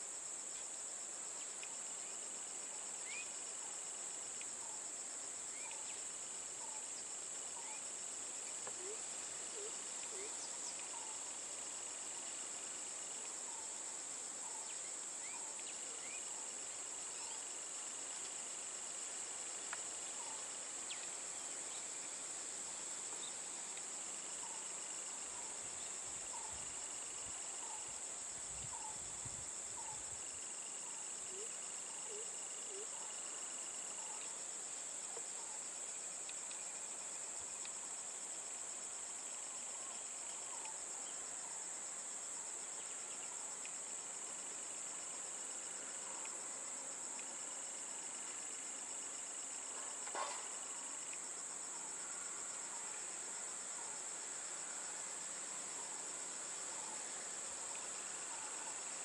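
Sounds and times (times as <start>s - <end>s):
shrill chorus of insects: 3.0s - 3.8s.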